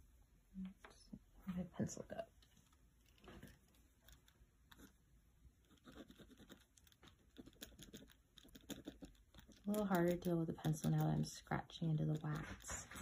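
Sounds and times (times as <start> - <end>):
pencil scratching on paper: 5.6 - 11.1.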